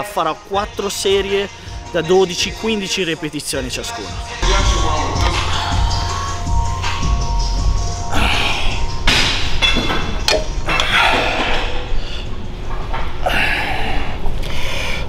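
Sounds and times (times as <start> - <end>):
weight stack knocking: 10.3 - 11.0.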